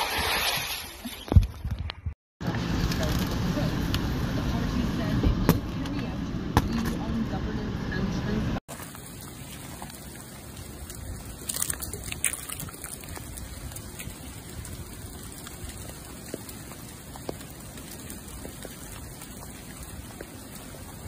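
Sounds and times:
freezing rain hiss and patter: 8.7 - 21.0.

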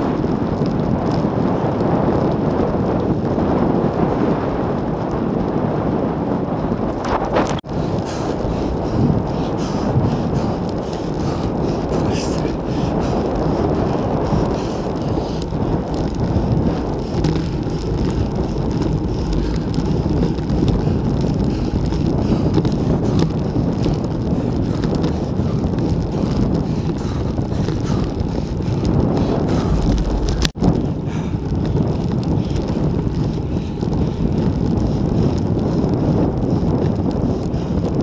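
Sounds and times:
wind rushing over microphone: 0.0 - 38.0.

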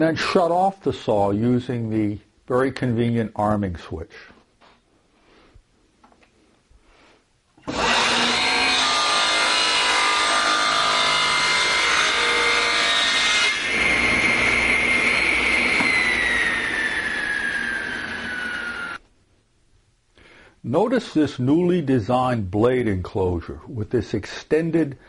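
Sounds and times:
saw blade whining: 7.6 - 19.0
table saw cutting wood: 7.6 - 19.0.

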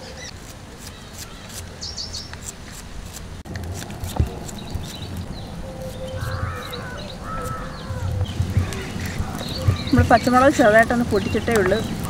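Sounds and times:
birds chirping: 0.0 - 2.6, 3.5 - 12.0
dull low thuds: 7.7 - 12.0.

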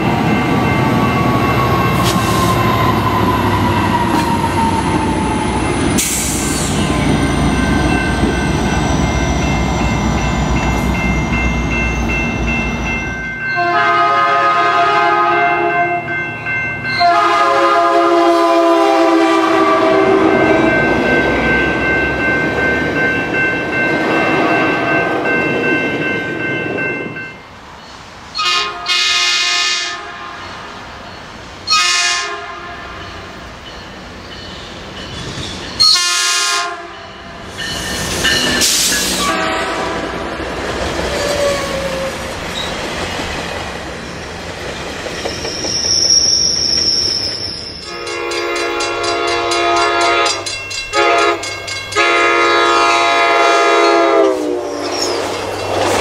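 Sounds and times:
train wheels rumbling on rails: 0.0 - 13.6, 16.3 - 29.0, 30.3 - 56.0
train horn: 13.6 - 16.1, 17.0 - 20.8, 28.4 - 30.6, 31.7 - 33.0, 35.8 - 37.2, 38.7 - 40.3, 47.9 - 55.1.

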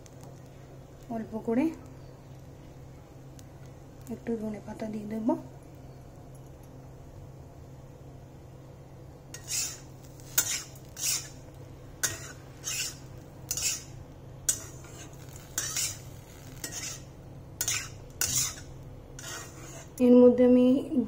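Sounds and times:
spatula scraping rice in pan: 9.3 - 20.0.

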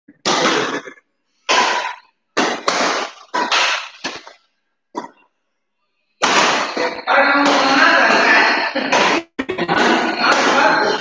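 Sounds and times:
rackets hitting shuttlecock: 1.5 - 4.4, 6.2 - 11.0.

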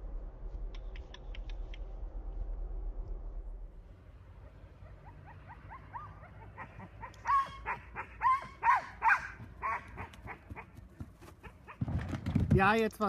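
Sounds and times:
dog whining: 4.8 - 10.7
small dog barking: 5.2 - 10.7.

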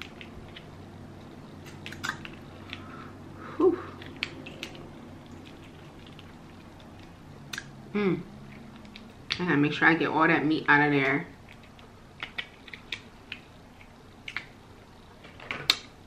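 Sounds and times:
crab shell clicks and crackles: 0.0 - 2.9, 11.4 - 14.7.

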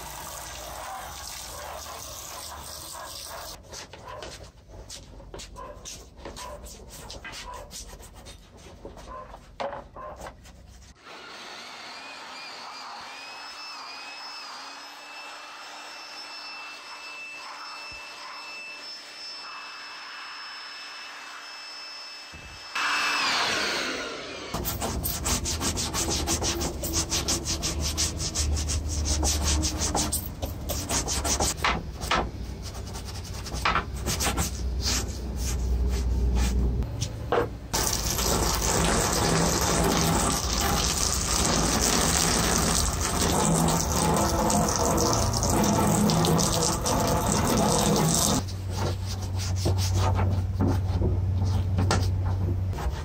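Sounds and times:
brush scrubbing wet plastic: 0.0 - 11.0, 24.6 - 37.2, 37.8 - 53.0
scratchy brush strokes on plastic: 0.8 - 11.0, 24.6 - 31.6, 32.6 - 36.8, 37.8 - 53.0
hot-air blower whining: 11.0 - 24.8.

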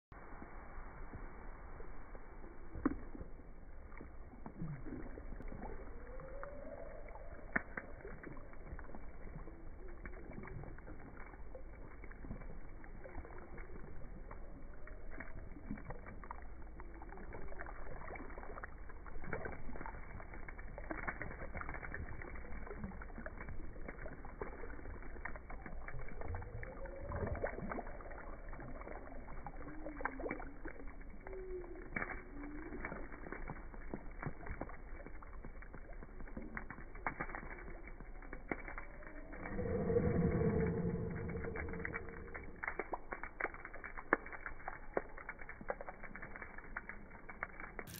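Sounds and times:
water splashing and dripping: 1.7 - 47.9
low gliding sounds: 39.1 - 42.9.

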